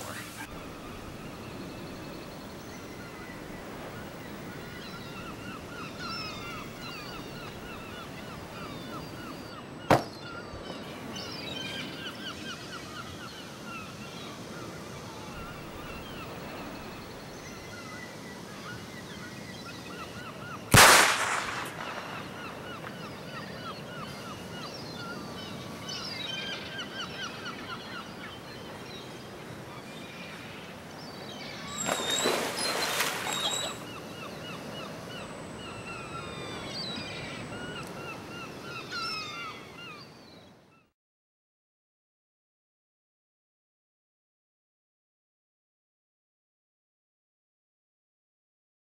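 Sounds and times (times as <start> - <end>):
birds chirping: 0.0 - 40.5
sharp crack: 9.9 - 10.2, 20.7 - 23.0
water splashing: 31.7 - 33.8.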